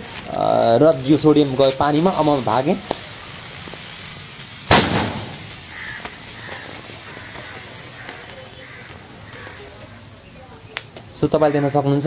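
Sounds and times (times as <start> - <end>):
hissing: 0.0 - 11.3
small crackles: 0.0 - 12.0
sodium explosion bang: 4.7 - 5.8.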